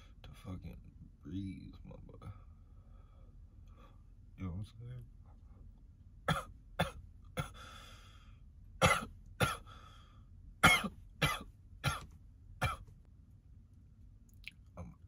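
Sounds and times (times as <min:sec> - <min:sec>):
man coughing hard: 0:06.3 - 0:07.6, 0:08.8 - 0:09.7, 0:10.6 - 0:12.9
wheezing breath: 0:07.5 - 0:08.4, 0:09.6 - 0:10.3.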